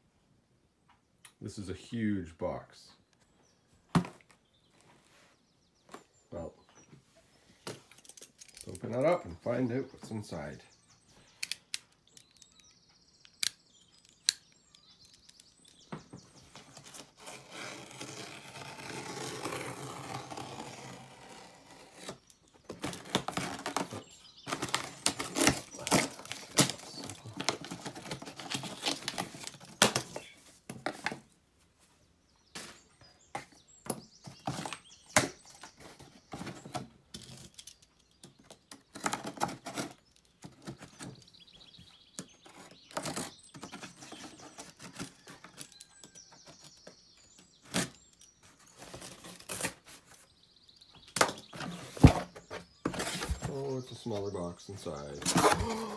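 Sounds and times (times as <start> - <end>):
cardboard crackling and rustling: 15.0 - 55.9
box cutter slicing cardboard: 16.8 - 30.2, 55.2 - 55.9.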